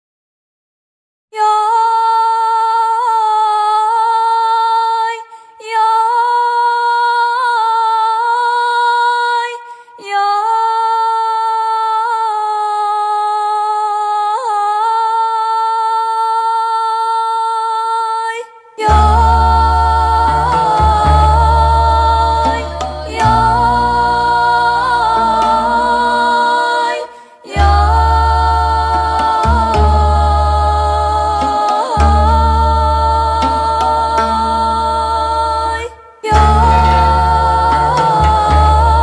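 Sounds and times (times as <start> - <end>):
person singing wordless notes: 18.8 - 39.0
deep low accompaniment: 18.9 - 26.6, 36.4 - 39.0.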